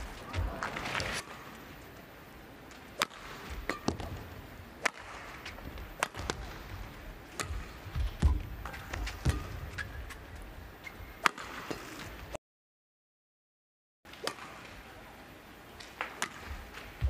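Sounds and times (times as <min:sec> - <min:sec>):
racket hitting shuttlecock: 0:02.9 - 0:10.2, 0:11.2 - 0:11.9, 0:14.1 - 0:14.7, 0:15.8 - 0:17.0.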